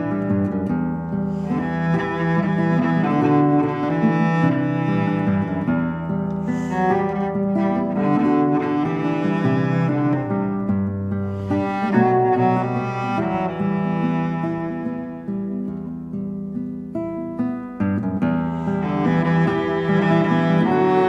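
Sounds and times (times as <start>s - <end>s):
cello bowing low notes: 0.0s - 15.7s, 18.4s - 21.0s
classical guitar: 0.0s - 21.0s
violins: 1.3s - 10.8s, 11.4s - 15.6s, 18.5s - 21.0s.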